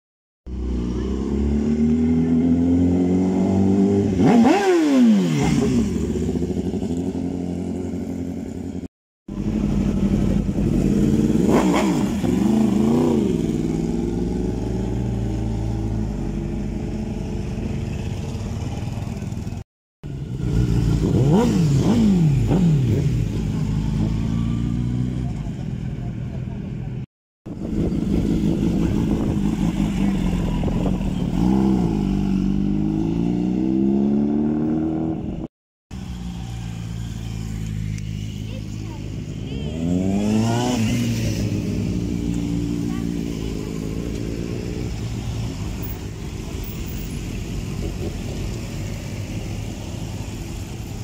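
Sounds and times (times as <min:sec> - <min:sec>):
motorcycles passing by: 0:00.5 - 0:51.0.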